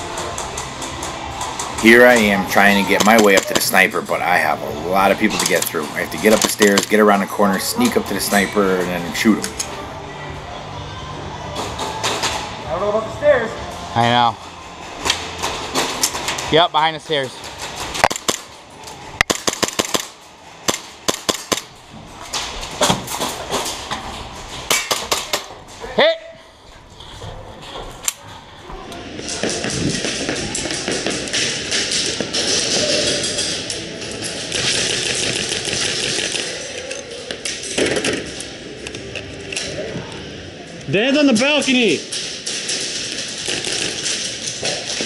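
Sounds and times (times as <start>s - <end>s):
airsoft guns firing: 18.0s - 18.6s, 19.2s - 21.8s, 24.7s - 25.5s, 29.1s - 33.1s, 42.1s - 45.0s
airsoft guns firing rapidly: 19.3s - 21.7s.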